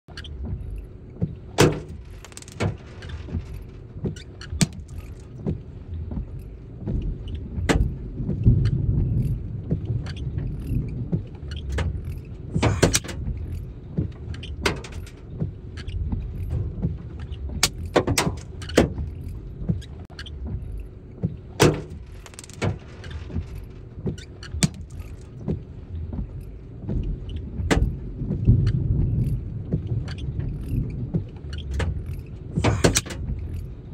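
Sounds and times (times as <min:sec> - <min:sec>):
wind buffeting microphone: 0:00.3 - 0:33.9.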